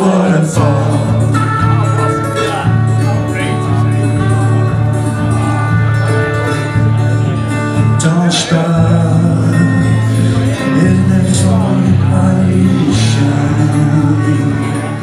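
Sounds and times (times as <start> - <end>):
strummed acoustic guitar: 0.0 - 15.0.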